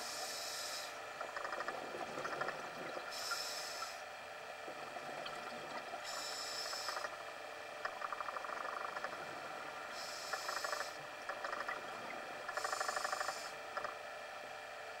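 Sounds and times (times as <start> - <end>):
rapid bubbling underwater: 1.1 - 13.0.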